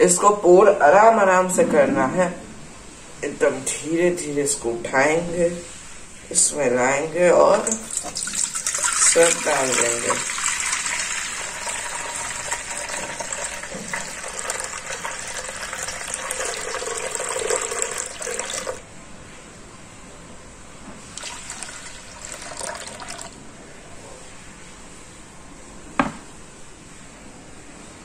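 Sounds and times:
faint water trickles: 7.5 - 18.8, 21.1 - 23.4
water pouring into metal pot: 7.7 - 18.8, 21.1 - 23.4.

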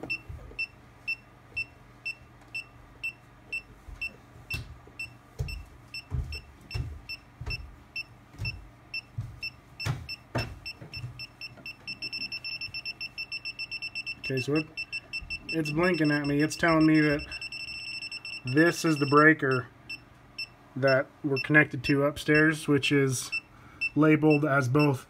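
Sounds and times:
electronic wand beeping: 10.1 - 19.6.

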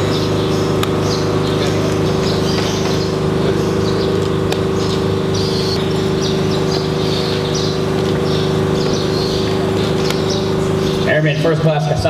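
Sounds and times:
steady mechanical hum: 0.0 - 12.0
short high bird chirps: 0.1 - 11.1.

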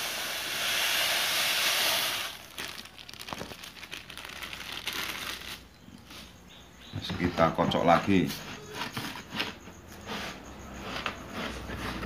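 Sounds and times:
sugar pouring into a bowl: 0.0 - 3.5
bag rustling: 2.4 - 6.3.

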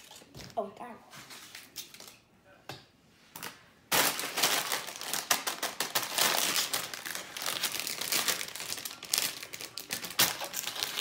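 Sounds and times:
plastic chip bag crinkling: 3.9 - 11.0.

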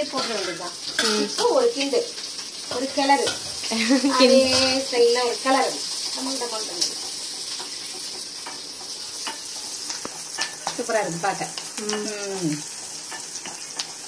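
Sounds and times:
vegetables sizzling in hot oil: 0.0 - 14.0
wooden spatula scraping pan: 2.7 - 4.9.

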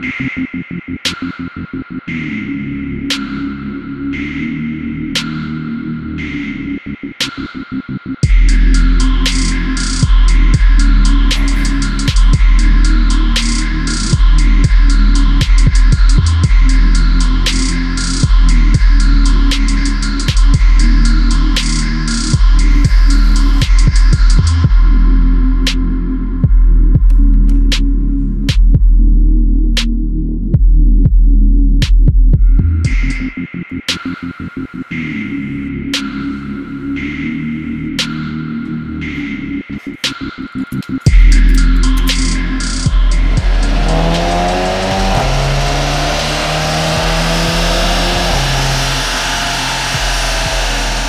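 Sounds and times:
electronic music with heavy bass: 0.0 - 51.0
car engine revving: 8.2 - 24.6, 41.1 - 51.0.

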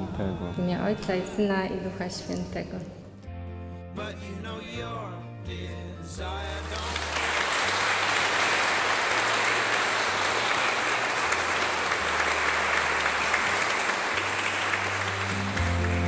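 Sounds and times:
crowd clapping: 6.5 - 16.0.

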